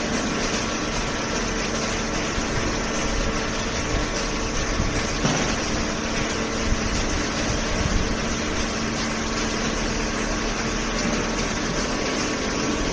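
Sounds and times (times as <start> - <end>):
shredder and baler machinery din: 10.1 - 12.9.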